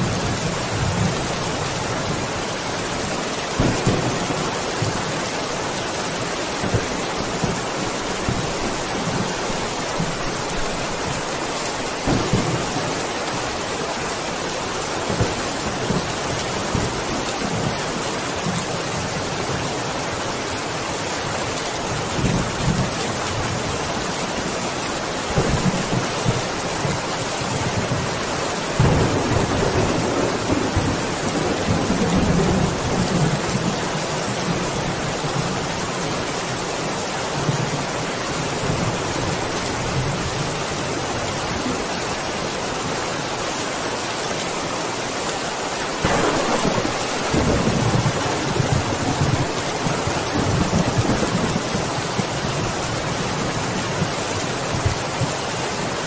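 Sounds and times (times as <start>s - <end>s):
steady rain: 0.0s - 56.0s
rolling thunder: 3.6s - 5.1s, 12.0s - 13.1s, 28.8s - 33.7s, 46.0s - 51.8s.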